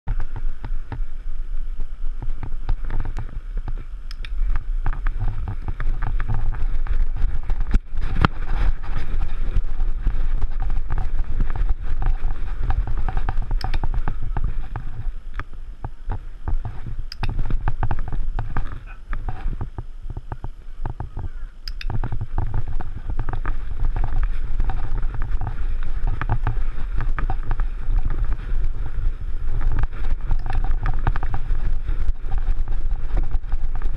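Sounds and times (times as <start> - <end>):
wind buffeting microphone: 0.0 - 33.9
camera knocks and rattles: 4.4 - 15.1, 15.8 - 28.9, 29.5 - 33.9.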